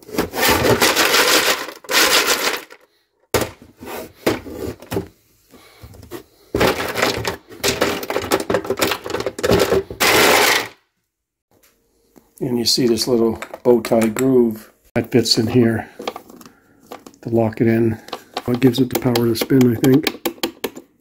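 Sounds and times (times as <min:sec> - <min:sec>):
ice cubes clattering in plastic bin: 0:00.0 - 0:02.8, 0:06.6 - 0:10.8.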